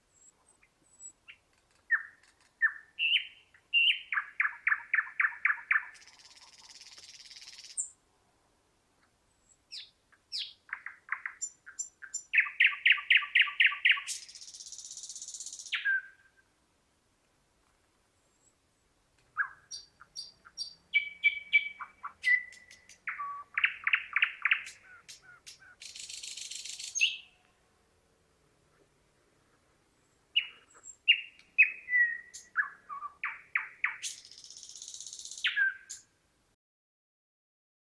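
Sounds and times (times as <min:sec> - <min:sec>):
bird singing: 0:00.1 - 0:08.0, 0:09.4 - 0:16.5, 0:19.3 - 0:27.6, 0:30.0 - 0:36.2.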